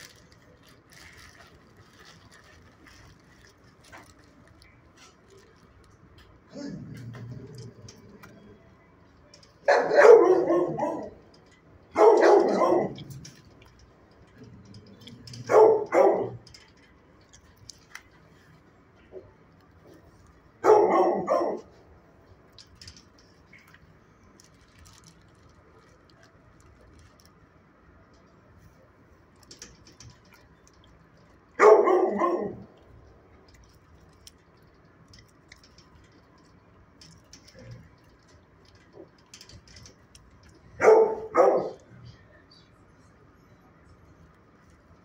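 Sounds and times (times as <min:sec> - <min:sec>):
dog barking: 0:09.6 - 0:11.2, 0:12.0 - 0:13.1, 0:15.4 - 0:16.4, 0:20.6 - 0:21.8, 0:31.6 - 0:32.7, 0:40.8 - 0:41.8.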